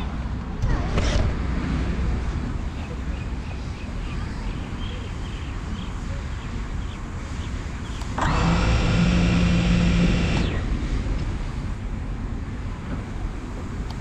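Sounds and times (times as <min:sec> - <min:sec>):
wind rumbling on microphone: 0:00.0 - 0:14.0
drone motors whining: 0:08.0 - 0:11.4.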